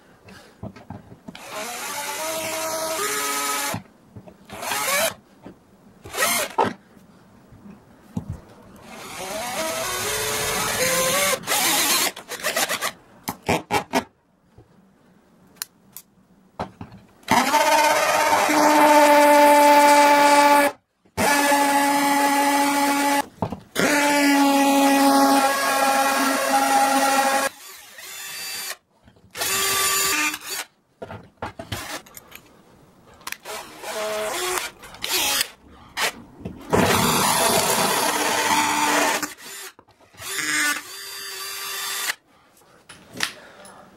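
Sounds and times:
power drill boring into wall: 8.8 - 13.0, 17.3 - 23.2, 23.8 - 28.8, 29.4 - 30.7, 33.4 - 42.2.

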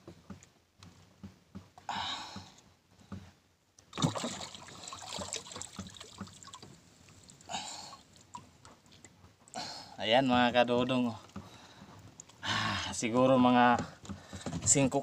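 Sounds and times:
water splashing and dripping: 3.8 - 9.7
scraping and clattering against hull: 13.0 - 15.0.

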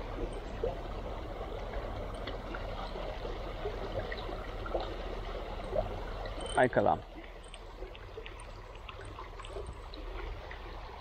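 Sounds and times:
river water running: 0.0 - 11.0
faint ticks: 7.2 - 9.9.

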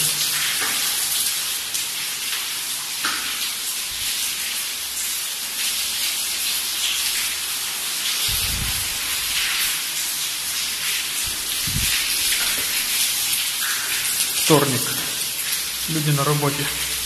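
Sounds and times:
rainwater rushing in: 0.0 - 1.9, 6.9 - 17.0.

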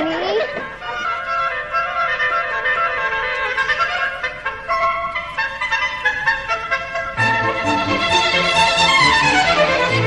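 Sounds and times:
violin melody: 0.0 - 10.0.

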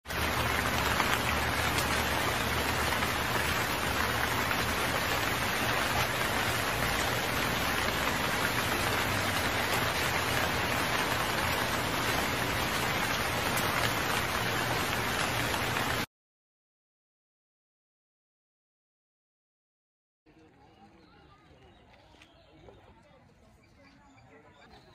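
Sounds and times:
heavy rain on wet road: 0.1 - 16.1.

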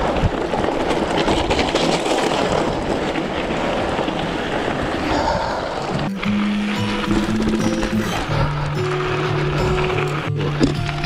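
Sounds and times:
bike tyres crunching gravel: 0.0 - 5.1
wind on microphone: 0.0 - 8.8.

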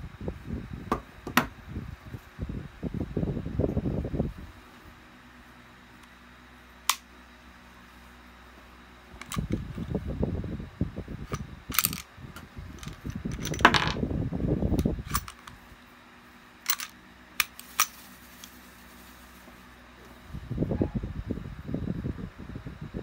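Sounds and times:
handling noise: 11.3 - 14.1, 14.8 - 15.7, 16.6 - 20.2
cartridge clinking on wooden table: 12.8 - 14.0.

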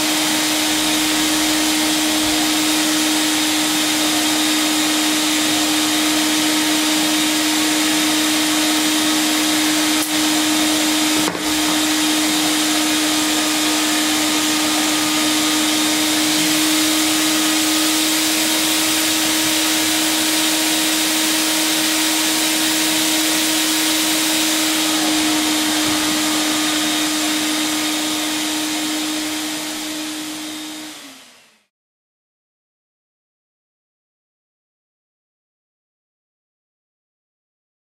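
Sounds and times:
vacuum cleaner running: 0.0 - 31.7.

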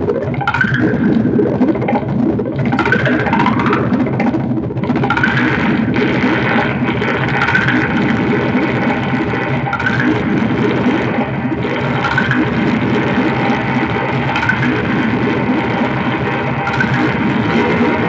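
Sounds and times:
dense feedback drone: 0.0 - 18.0
short rising whine: 0.0 - 18.0.

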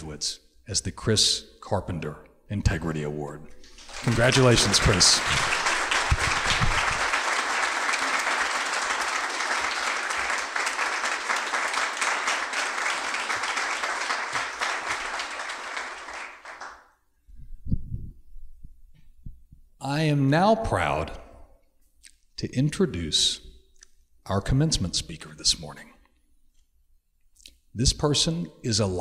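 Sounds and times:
audience applauding: 3.6 - 16.9.

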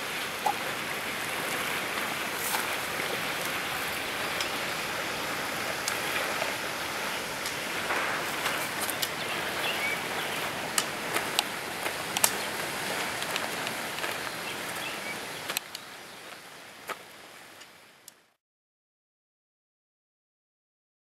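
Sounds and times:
outdoor rushing noise: 3.7 - 14.3.

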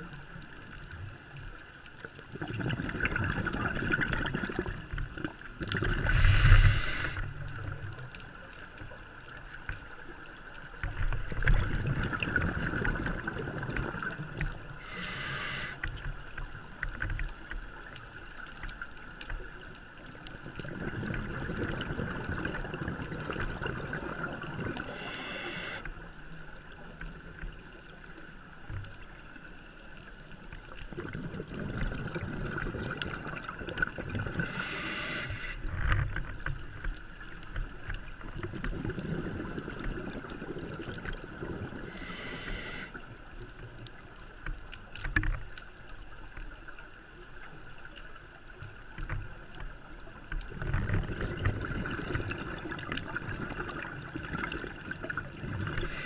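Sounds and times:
underwater bubbling: 0.0 - 56.0
diver breathing through regulator: 6.0 - 7.3, 14.8 - 15.8, 24.7 - 25.9, 34.4 - 35.7, 41.8 - 43.0, 55.8 - 56.0
regulator hiss: 6.1 - 7.3, 14.8 - 15.8, 24.8 - 25.9, 34.5 - 35.6, 41.9 - 43.0.

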